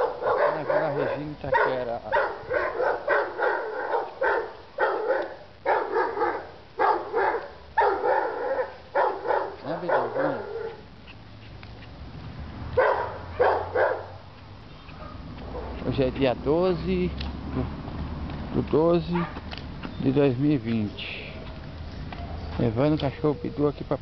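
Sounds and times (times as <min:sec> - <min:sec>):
dog barking: 0:00.0 - 0:10.9, 0:12.8 - 0:14.2, 0:14.8 - 0:15.9, 0:19.1 - 0:19.4
low hum of traffic: 0:00.0 - 0:24.0.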